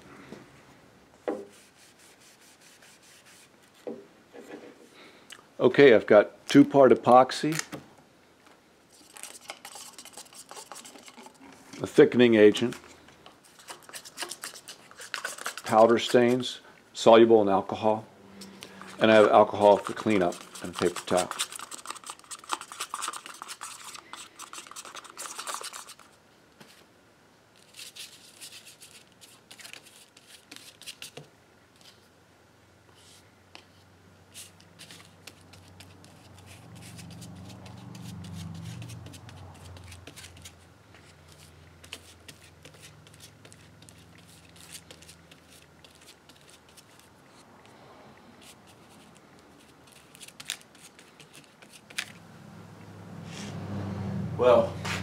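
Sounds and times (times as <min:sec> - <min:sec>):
stick stirring epoxy in cup: 0:09.0 - 0:11.9, 0:13.4 - 0:16.5, 0:18.6 - 0:26.1
low hum: 0:52.1 - 0:55.0.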